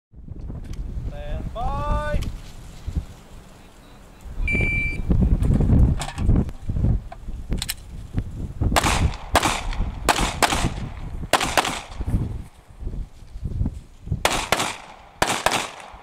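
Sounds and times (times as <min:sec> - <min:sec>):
handgun shots: 0:08.8 - 0:12.0, 0:14.3 - 0:16.0.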